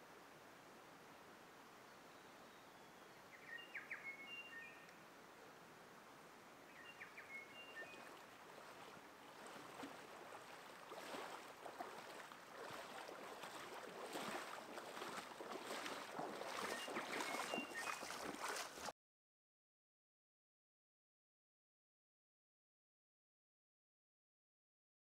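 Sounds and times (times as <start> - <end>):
water splashing around wading legs: 7.5 - 18.9.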